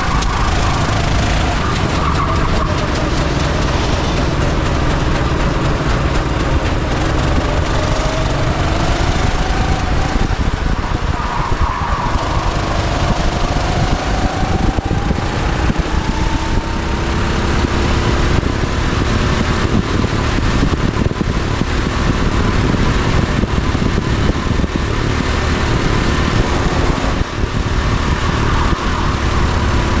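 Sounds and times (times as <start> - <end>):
go-kart engine accelerating: 0.0 - 30.0
heavy low rumble: 0.0 - 30.0.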